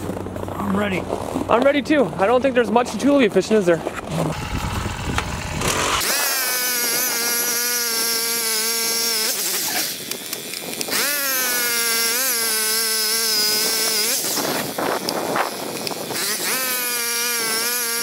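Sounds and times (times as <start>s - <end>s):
ice auger engine drilling: 3.8s - 18.0s.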